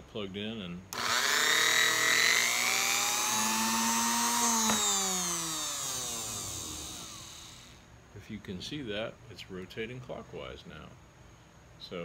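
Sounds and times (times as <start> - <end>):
sewing machine motor whining: 1.0 - 7.8.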